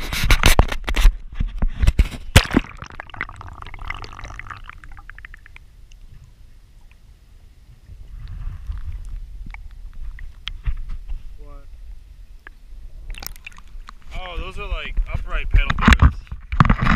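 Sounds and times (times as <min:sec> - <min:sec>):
water splashing: 0:02.4 - 0:06.3, 0:13.0 - 0:14.3
underwater gurgling and bubbling: 0:02.6 - 0:06.4.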